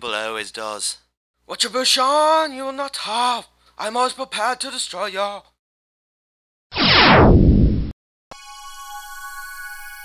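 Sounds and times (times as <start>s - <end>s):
electronic downward sweep effect: 6.8s - 7.9s.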